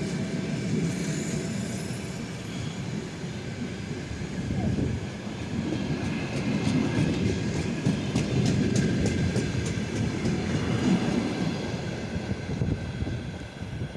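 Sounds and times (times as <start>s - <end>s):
electric train passing: 0.0s - 13.9s
train wheels clicking over rail joints: 5.6s - 12.8s.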